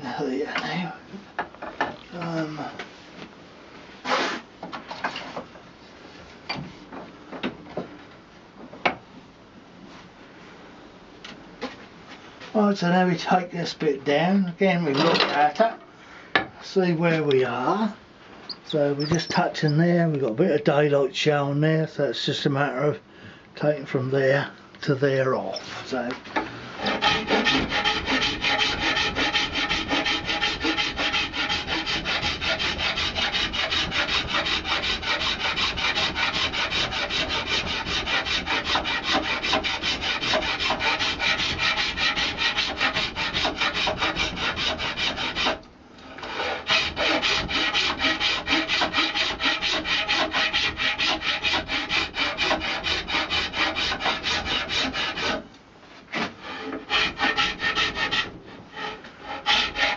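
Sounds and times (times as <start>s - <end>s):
hand file rasping on horn: 26.8s - 45.6s, 46.2s - 55.4s, 56.4s - 59.9s.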